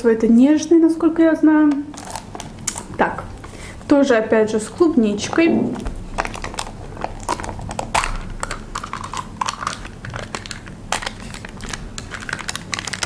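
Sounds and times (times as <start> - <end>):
foil lid clicks and crinkles: 6.2 - 13.0.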